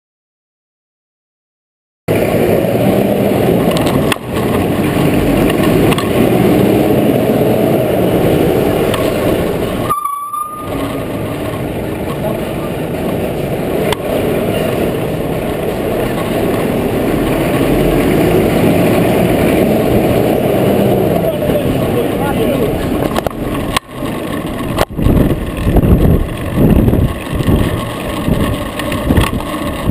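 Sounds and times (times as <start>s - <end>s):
lorry diesel engine rumble: 2.1s - 29.9s
road noise: 2.1s - 29.9s
wind noise: 2.1s - 29.9s
short thin tone: 9.8s - 11.5s.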